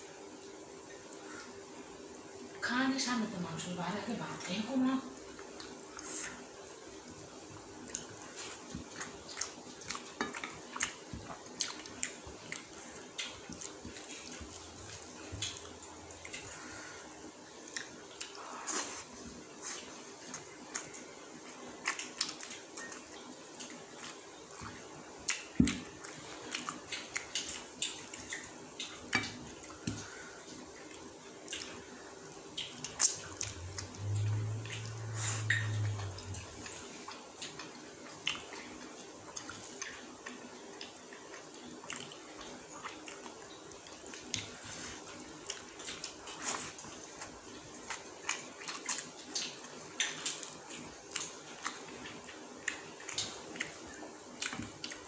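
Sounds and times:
wet chewing and finger smacks: 7.8s - 16.7s, 17.6s - 55.0s
brief low hum: 33.4s - 36.7s.

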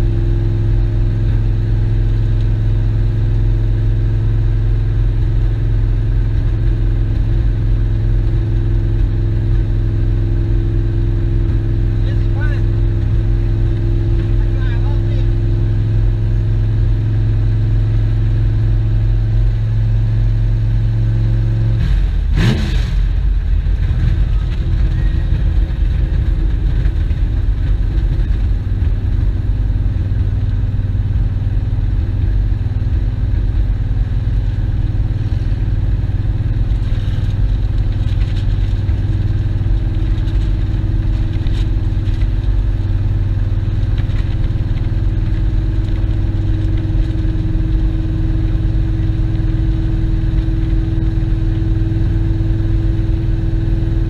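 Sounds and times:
car engine running: 0.0s - 54.0s
road rumble: 0.0s - 54.0s.

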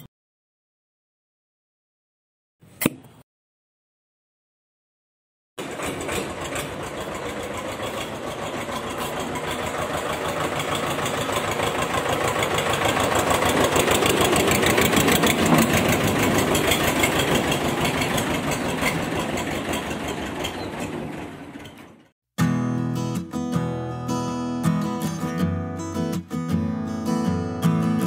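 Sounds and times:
tractor engine chugging: 5.6s - 22.1s.

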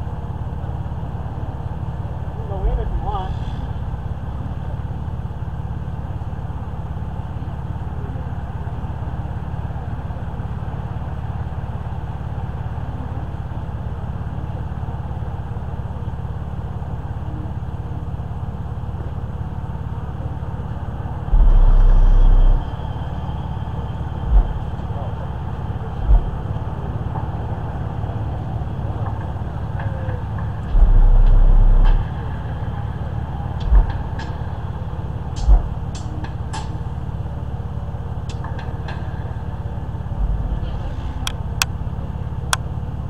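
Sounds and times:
minivan engine idling: 0.0s - 43.0s
deep bass note from subwoofers: 21.3s - 26.9s, 29.9s - 36.8s.

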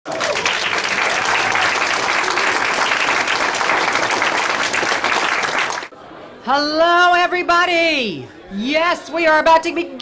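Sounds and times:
audience applauding: 0.1s - 5.9s.

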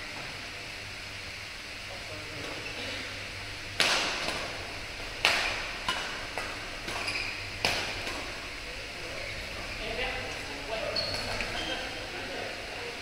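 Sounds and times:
rackets striking shuttlecock: 3.7s - 4.6s, 5.2s - 8.4s.

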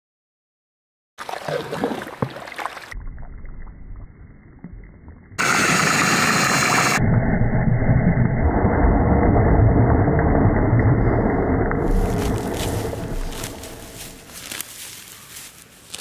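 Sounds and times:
slurry churning and splashing: 9.4s - 14.6s.

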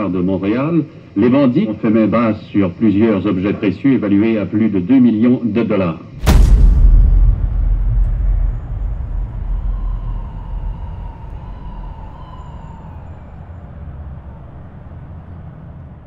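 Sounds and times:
deep low rumble: 6.2s - 13.6s.

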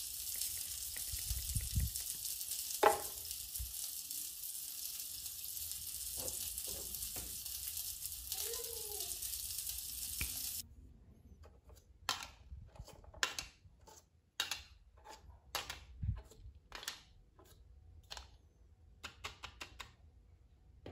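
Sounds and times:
frying sizzle: 0.0s - 10.6s.

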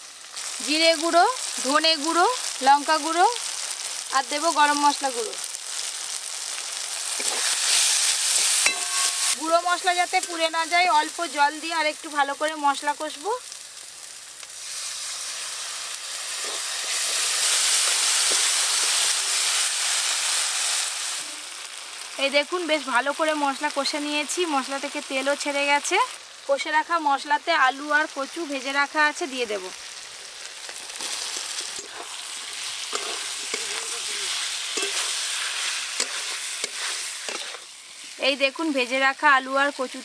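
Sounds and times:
spices sizzling in a wok: 0.0s - 40.0s
metal spatula scraping wok: 7.0s - 11.1s, 16.3s - 19.6s, 30.7s - 38.2s.

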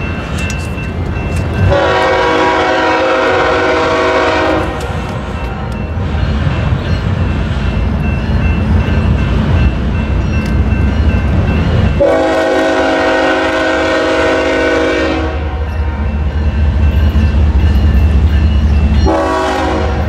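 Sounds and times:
diesel locomotives rumbling: 0.0s - 20.0s
train air horn: 1.7s - 5.0s, 12.0s - 15.7s, 19.1s - 20.0s.

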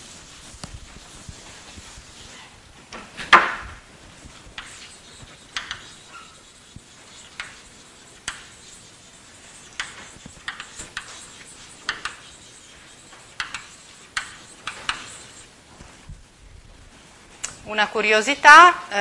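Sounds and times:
chalk tapping on blackboard: 0.0s - 2.5s, 4.2s - 15.5s.

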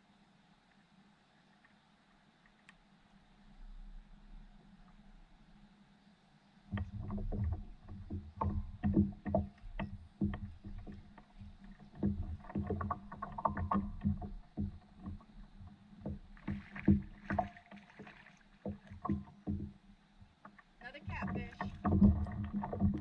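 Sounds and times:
hollow knocks on board hull: 6.7s - 23.0s
water slapping against hull: 6.7s - 23.0s
fish thrashing splashes: 16.0s - 19.8s.

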